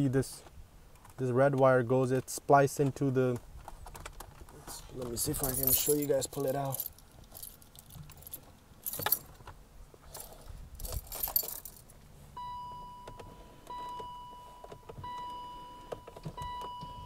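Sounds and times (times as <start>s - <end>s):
keys jangling on ring: 5.2s - 9.3s, 10.1s - 11.9s
car warning chime: 12.4s - 17.0s.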